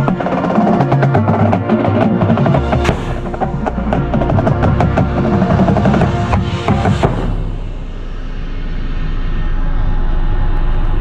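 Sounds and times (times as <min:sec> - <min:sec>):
mallet and drum percussion: 0:00.0 - 0:07.6
held brass chords: 0:00.0 - 0:08.4.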